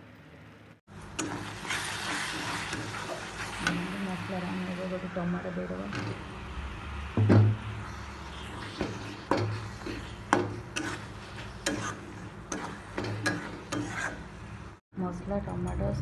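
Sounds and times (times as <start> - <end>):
metal spatula scraping a pan: 1.2 - 4.6, 7.8 - 14.5
knock on pan: 7.2 - 7.6.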